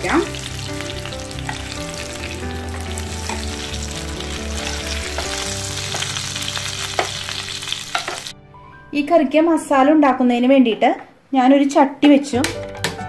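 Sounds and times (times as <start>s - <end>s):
oil sizzling in a pan: 0.0s - 8.4s.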